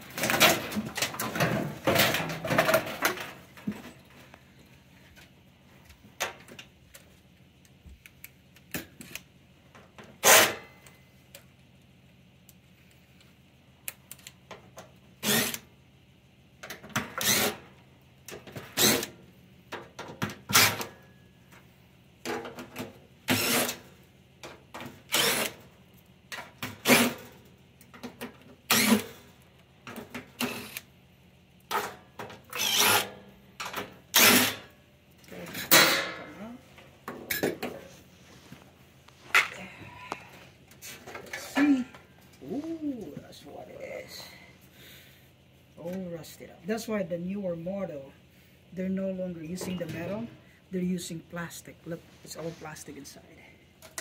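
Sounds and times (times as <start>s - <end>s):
cordless drill whirring: 25.1s - 25.5s.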